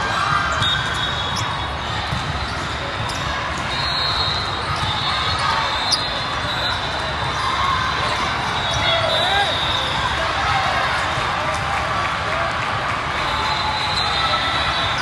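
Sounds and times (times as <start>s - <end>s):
volleyballs bouncing and being struck: 0.0s - 3.8s.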